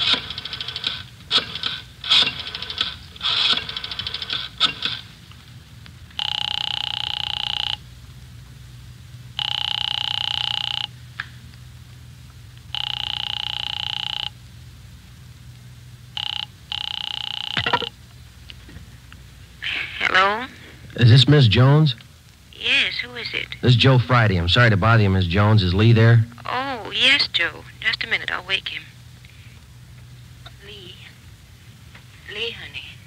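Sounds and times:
rotary dial clicking and whirring: 0:00.0 - 0:05.1, 0:06.1 - 0:07.8, 0:12.6 - 0:14.3, 0:16.2 - 0:17.9
telephone bell ringing: 0:06.2 - 0:07.8, 0:09.4 - 0:10.9, 0:12.7 - 0:14.4, 0:16.2 - 0:17.9.

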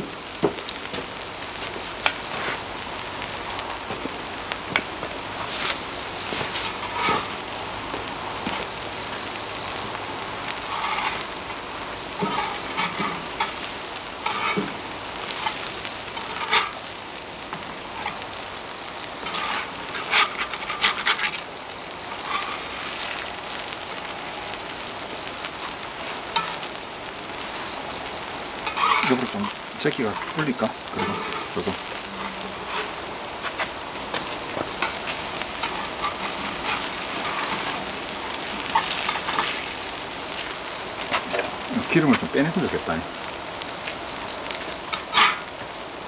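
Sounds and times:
pancakes sizzling in oil: 0:00.0 - 0:46.0
spatulas scraping and knocking: 0:06.3 - 0:07.3, 0:10.7 - 0:11.2, 0:12.2 - 0:16.9, 0:19.2 - 0:21.4, 0:28.6 - 0:39.7, 0:44.9 - 0:45.5.

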